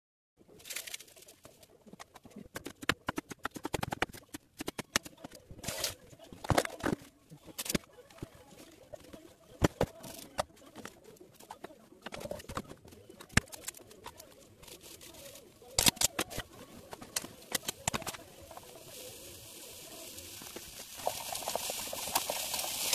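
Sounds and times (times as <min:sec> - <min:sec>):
food sizzling in a frying pan: 0:18.3 - 0:22.9.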